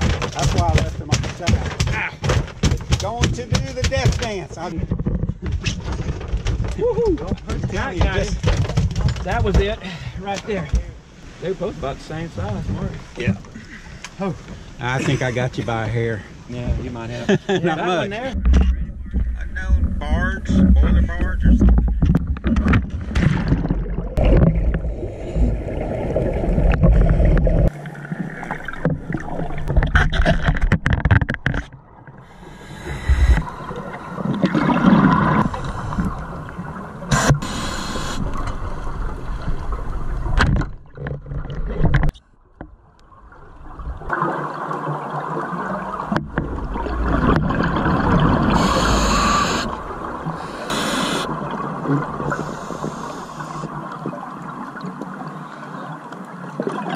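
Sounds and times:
muffled underwater water rush: 9.5s - 17.2s, 18.1s - 56.9s
heavy low rumble: 18.4s - 22.4s
regulator bubbles hissing: 32.2s - 38.4s, 46.6s - 53.8s.

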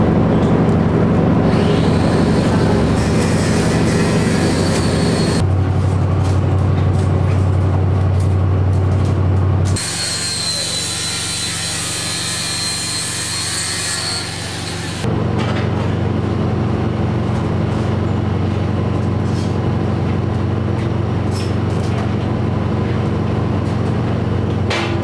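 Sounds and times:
boat engine drone: 0.0s - 11.0s
angle grinder cutting steel: 1.5s - 5.4s, 9.8s - 15.1s.

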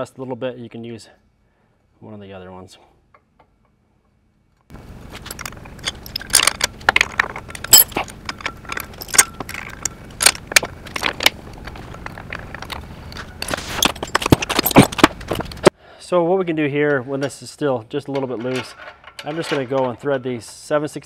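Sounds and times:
steel bolts clinking: 5.2s - 15.7s, 16.9s - 21.0s.

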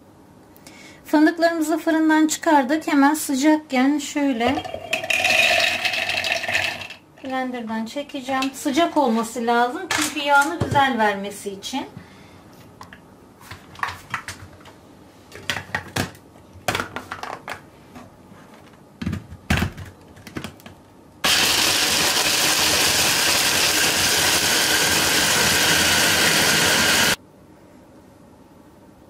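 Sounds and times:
hand blender grinding nuts: 5.1s - 7.0s, 21.2s - 27.2s.

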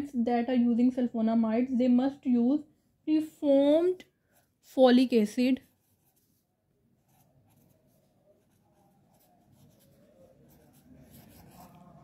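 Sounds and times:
pen scratching on paper: 5.6s - 12.0s.

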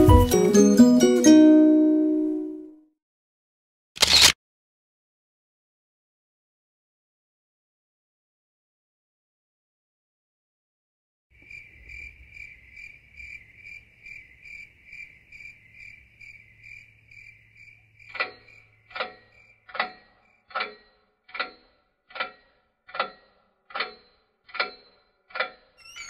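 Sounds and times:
sharp ringing ticks: 18.1s - 26.0s
high chirping pulsing tone: 25.8s - 26.0s.

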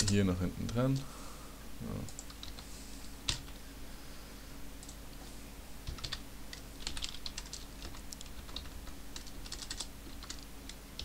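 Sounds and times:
steady low hum: 0.0s - 11.0s
keyboard typing: 2.1s - 2.7s, 5.8s - 11.0s.

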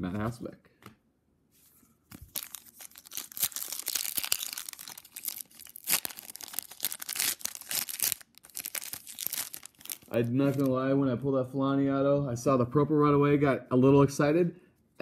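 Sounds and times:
foil wrapper crinkling: 2.1s - 10.7s.

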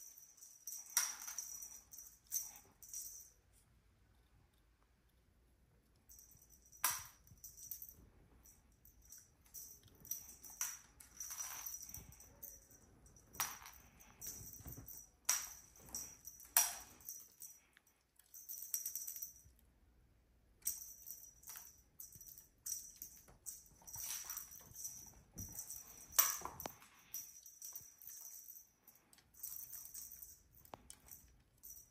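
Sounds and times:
cat toy jingling: 6.1s - 19.5s, 20.6s - 31.9s.

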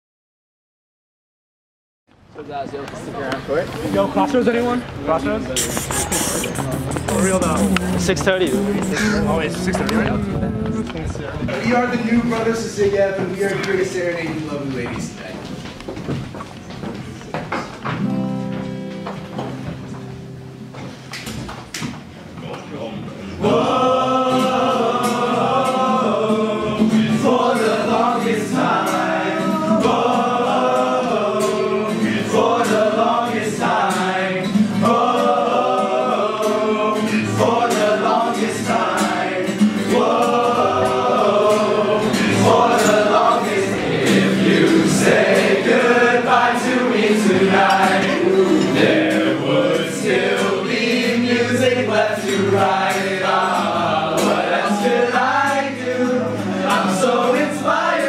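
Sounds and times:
acoustic guitar: 3.4s - 58.0s
young men singing together: 5.6s - 10.9s, 23.4s - 58.0s.

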